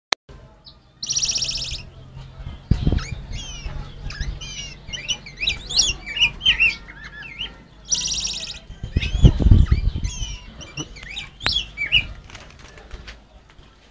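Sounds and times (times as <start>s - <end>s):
bird rapid trill: 0.6s - 12.6s
warbled whistled bird notes: 1.0s - 2.0s, 2.6s - 12.1s.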